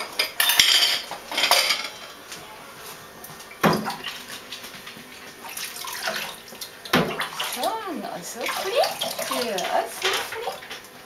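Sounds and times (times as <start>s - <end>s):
water splashing in metal pot: 5.5s - 10.8s.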